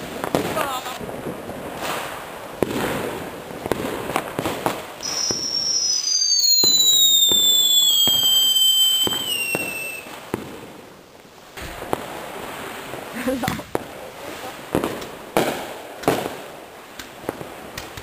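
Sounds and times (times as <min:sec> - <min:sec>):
firecracker bangs: 0:00.0 - 0:10.7, 0:14.7 - 0:16.4
firework fountain spraying sparks: 0:00.0 - 0:18.0
firework whistle: 0:05.0 - 0:10.2.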